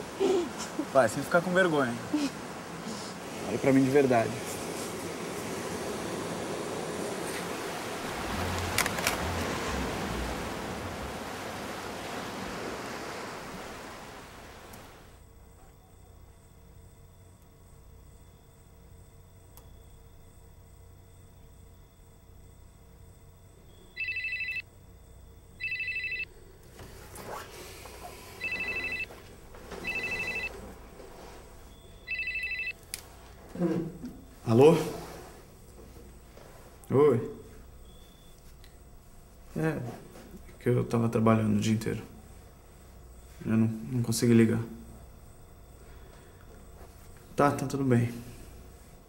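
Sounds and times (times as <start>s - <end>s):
sea surf: 0.0s - 15.2s, 29.7s - 30.8s
wind: 0.0s - 49.0s
telephone ringing: 24.0s - 24.6s, 25.6s - 26.3s, 28.4s - 30.7s, 31.9s - 32.8s.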